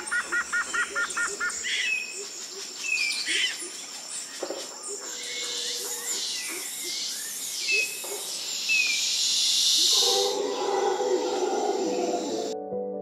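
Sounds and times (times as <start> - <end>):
birds chirping: 0.0 - 12.6
insect buzz: 2.8 - 12.6
soft sustained music tones: 10.2 - 13.0.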